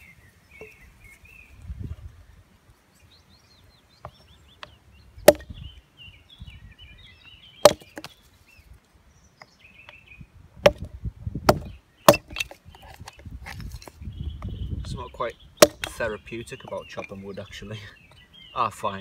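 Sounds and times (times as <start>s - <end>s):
axe chopping wood: 5.2s - 5.6s, 7.6s - 8.1s, 10.6s - 12.6s, 15.6s - 16.1s.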